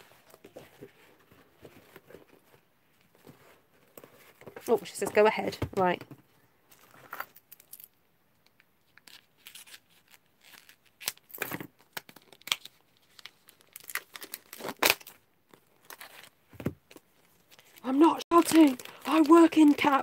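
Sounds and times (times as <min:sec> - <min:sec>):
plastic wrapping crinkling: 0:08.9 - 0:20.0.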